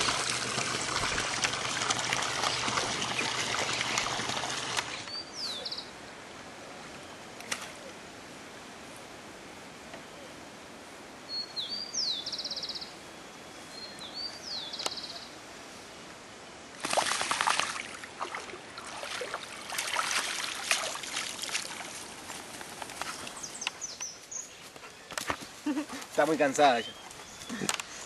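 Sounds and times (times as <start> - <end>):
dog splashing out of pool: 0.0 - 5.1, 16.8 - 22.0
water sloshing and dripping: 0.0 - 5.1, 16.8 - 22.2.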